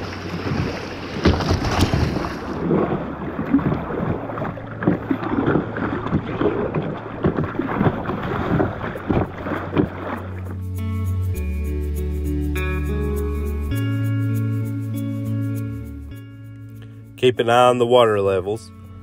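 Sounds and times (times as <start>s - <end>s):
wind buffeting microphone: 0.0s - 10.4s
river water rushing and splashing: 0.0s - 10.8s.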